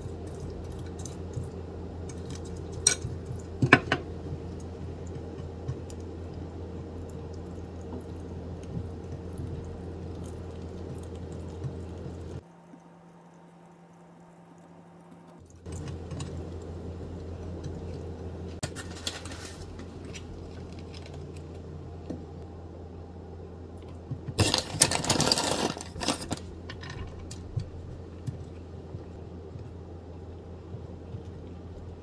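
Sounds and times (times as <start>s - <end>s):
steady low hum: 0.0s - 32.0s
plastic packaging crinkling: 18.6s - 21.6s, 24.4s - 26.5s
food wrapping clicks and rustles: 18.6s - 21.7s, 24.3s - 27.6s.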